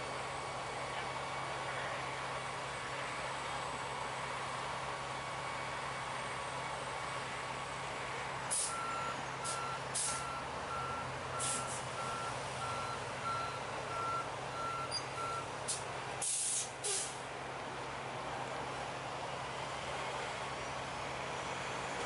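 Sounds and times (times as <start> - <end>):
truck engine running: 0.0 - 22.0
air brake hiss: 8.5 - 8.8, 9.4 - 10.2, 11.4 - 11.9, 15.7 - 17.2
truck back-up alarm beeping: 8.5 - 17.1.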